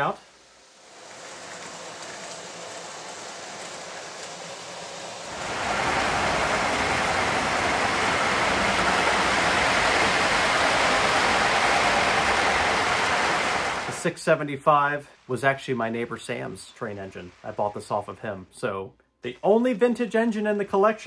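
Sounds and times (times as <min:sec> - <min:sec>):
model trains rumbling on track: 0:00.0 - 0:14.2.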